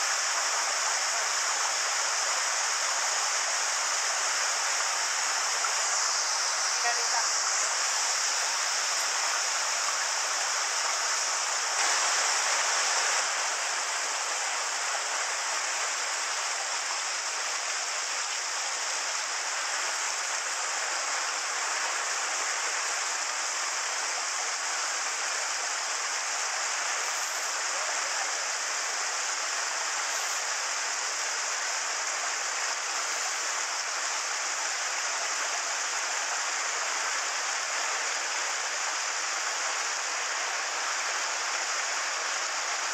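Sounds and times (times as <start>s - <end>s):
stream rushing over rocks: 0.0s - 42.9s
waterfall pouring into pool: 0.0s - 42.9s.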